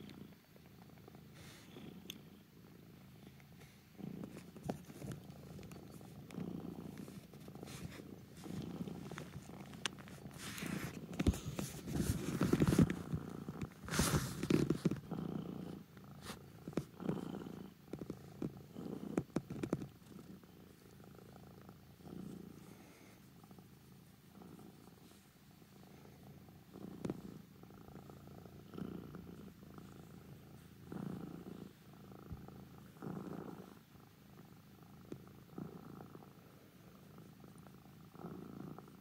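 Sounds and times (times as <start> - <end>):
cat purring: 0.0 - 39.0
fur rubbing on microphone: 4.0 - 15.4, 16.2 - 21.3.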